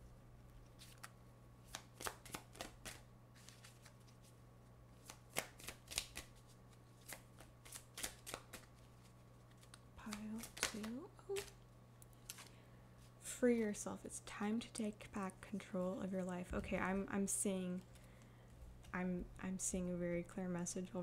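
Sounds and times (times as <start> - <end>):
cards being shuffled: 0.5 - 4.3, 5.0 - 12.6.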